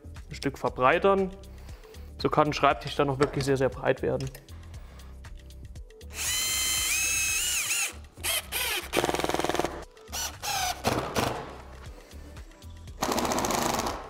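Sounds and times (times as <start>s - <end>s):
cordless drill motor whine: 6.1s - 8.9s.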